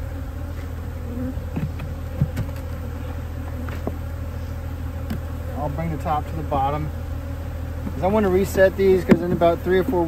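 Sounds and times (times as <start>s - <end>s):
honey bees buzzing: 0.0s - 10.0s
light knocks on hive: 1.5s - 4.2s, 5.0s - 5.3s, 7.8s - 10.0s.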